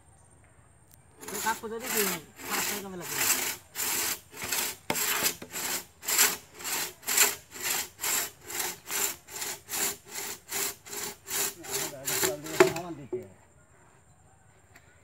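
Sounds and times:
crosscut saw rasping through wood: 0:01.2 - 0:13.0.

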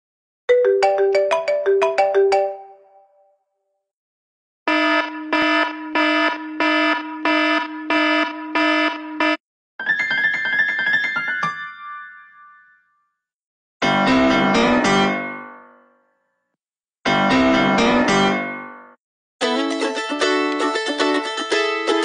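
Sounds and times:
chiming ringtone: 0:00.5 - 0:03.2
bright melodic ringtone: 0:00.5 - 0:03.3, 0:09.8 - 0:13.0.

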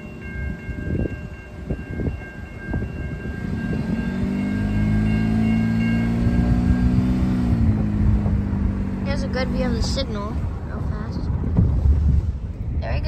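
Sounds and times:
railroad crossing bell ringing: 0:00.0 - 0:10.4
low knocks and rumble: 0:06.8 - 0:13.0.

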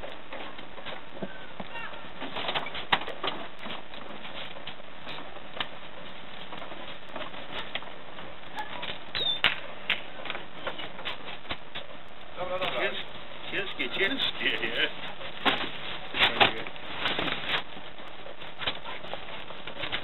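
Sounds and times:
high squeak: 0:08.6 - 0:09.4.

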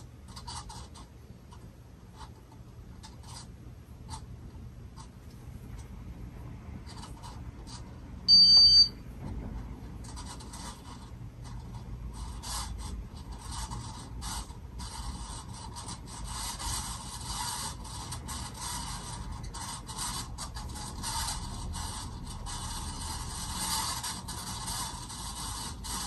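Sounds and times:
ceiling fan scraping: 0:00.0 - 0:26.0
loud electronic beep: 0:08.3 - 0:08.9.

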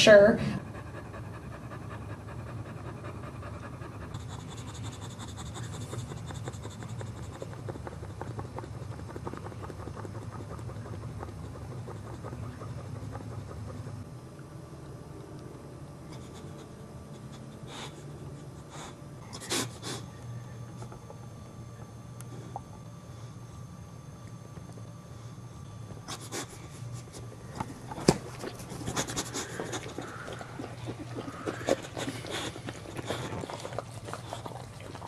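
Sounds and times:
dog panting rapidly: 0:00.6 - 0:14.0, 0:28.1 - 0:35.0.

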